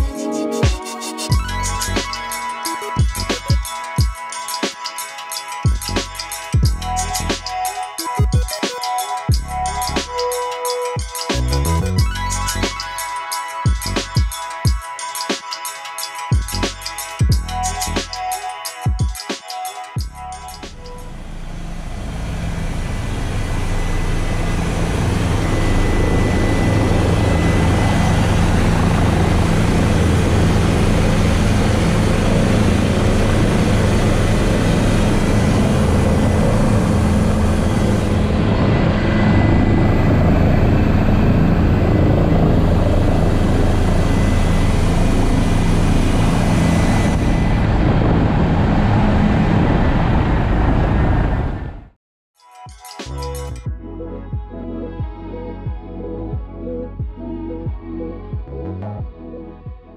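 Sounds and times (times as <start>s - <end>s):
helicopter rotor and turbine engine: 20.4s - 52.0s.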